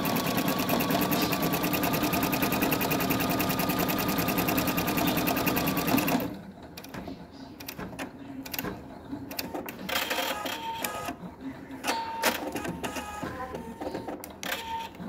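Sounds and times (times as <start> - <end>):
embroidery machine stitching: 0.0 - 7.0.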